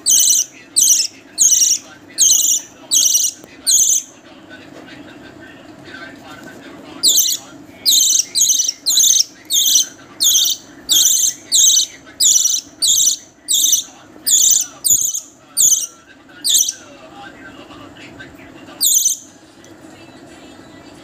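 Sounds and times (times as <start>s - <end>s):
budgerigar chick begging calls: 0.0s - 4.1s, 7.0s - 15.9s.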